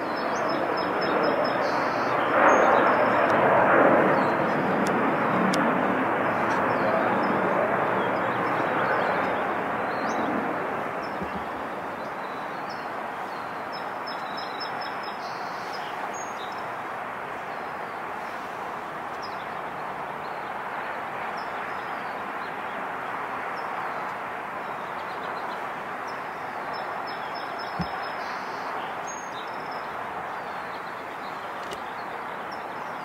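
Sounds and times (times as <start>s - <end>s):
small birds chirping: 0.0s - 3.2s, 6.5s - 16.7s, 23.5s - 33.0s
outdoor background noise: 0.0s - 33.0s.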